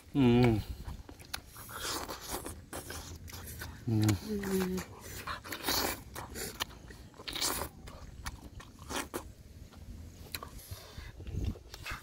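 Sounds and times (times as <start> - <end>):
mouth clicks and smacks: 0.0 - 9.3
man chewing food: 0.0 - 12.0.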